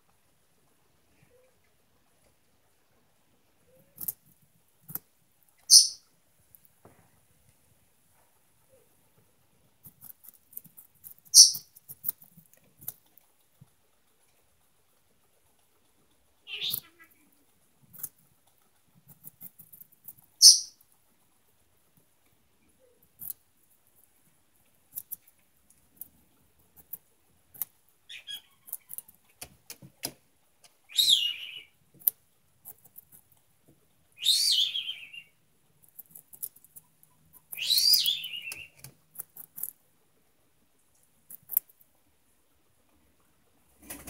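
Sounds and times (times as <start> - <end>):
guinea pig crunching carrot: 1.9 - 43.6
parrot squawking: 5.7 - 6.0, 16.5 - 17.1, 28.1 - 28.7, 30.9 - 31.7, 34.2 - 35.3, 37.6 - 38.6.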